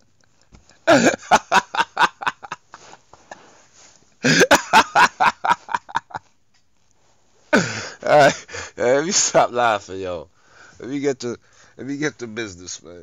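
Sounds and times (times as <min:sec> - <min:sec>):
man laughing: 0:00.9 - 0:03.4, 0:04.2 - 0:06.3, 0:07.6 - 0:08.6.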